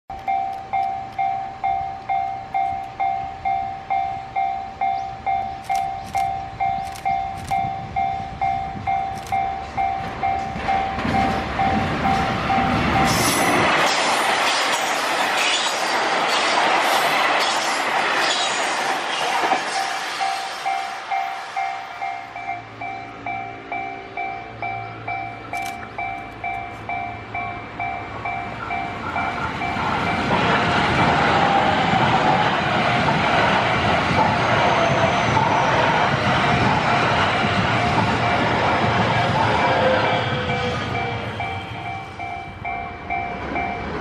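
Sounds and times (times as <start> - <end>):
train rumble: 0.1 - 44.0
level crossing bell ringing: 0.2 - 13.1, 19.8 - 30.3, 40.6 - 44.0.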